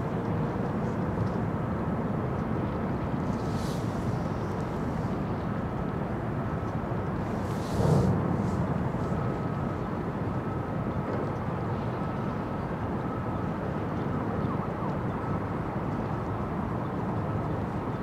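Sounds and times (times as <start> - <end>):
distant dockside machinery rumble: 0.0 - 13.8
distant traffic: 0.0 - 18.0.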